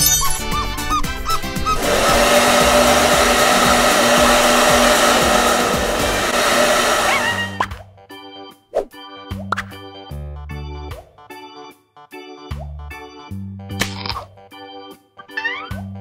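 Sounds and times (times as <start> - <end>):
hair dryer blowing: 1.0 - 7.7.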